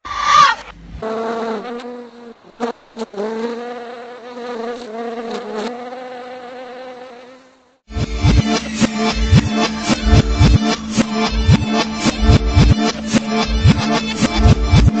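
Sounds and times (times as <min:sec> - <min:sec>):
insect buzzing: 0:01.0 - 0:07.8.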